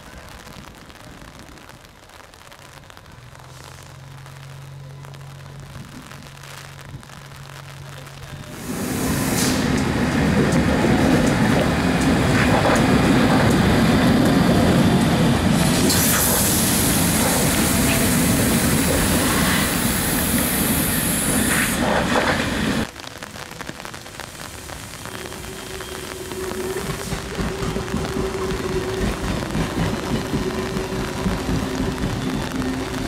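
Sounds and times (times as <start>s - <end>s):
rail-yard noise: 3.2s - 33.0s
train wheels rumbling on rails: 3.3s - 22.9s, 24.6s - 33.0s
high hiss: 8.4s - 22.9s, 24.0s - 33.0s.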